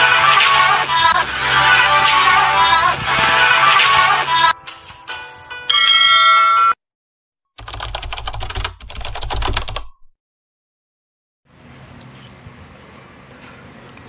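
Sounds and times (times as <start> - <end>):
rapid typewriter-style clicking: 7.6 - 9.9.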